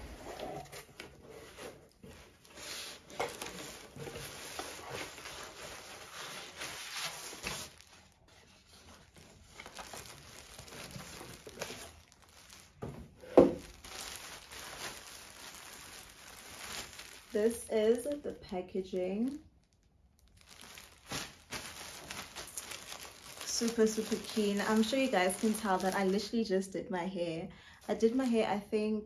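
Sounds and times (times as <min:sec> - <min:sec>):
plastic packaging crinkling and tearing: 0:00.0 - 0:26.5
small rustles and clicks: 0:00.7 - 0:12.8.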